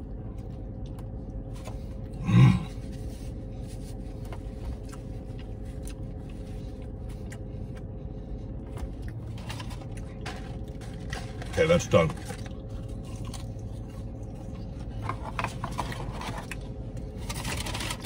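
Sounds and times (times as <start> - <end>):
car interior hum: 0.0 - 17.3
wet chewing: 3.4 - 17.8.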